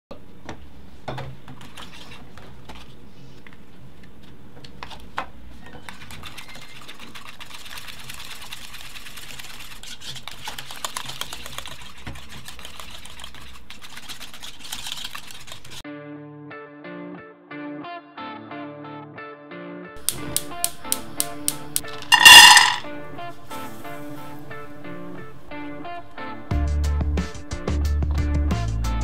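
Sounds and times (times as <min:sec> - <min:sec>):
whisk scraping a saucepan: 0:05.8 - 0:15.8
guitar music: 0:15.9 - 0:22.1.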